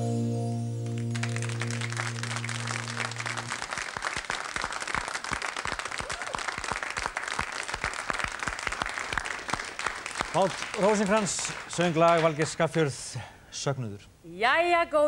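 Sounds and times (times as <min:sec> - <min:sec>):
band's final held chord: 0:00.0 - 0:03.6
audience applauding: 0:00.8 - 0:13.2.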